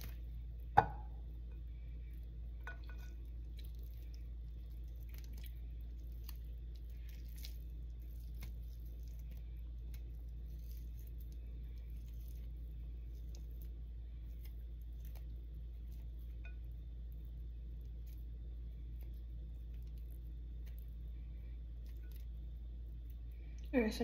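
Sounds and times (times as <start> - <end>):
low hum: 0.0 - 24.0
knock on a ceramic bowl: 0.8 - 1.1.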